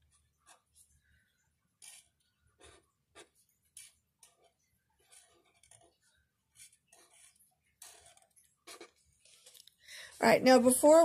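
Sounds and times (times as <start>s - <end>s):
marker scratching on paper: 1.8s - 9.6s.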